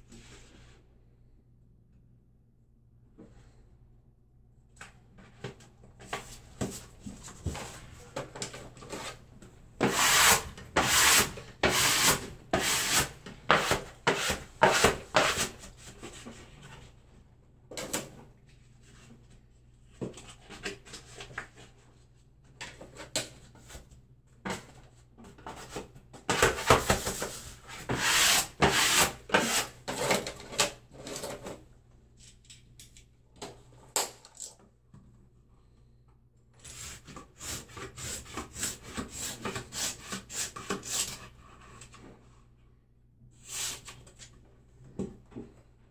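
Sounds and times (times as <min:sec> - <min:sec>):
tool rubbing wallpaper: 0:09.8 - 0:15.6.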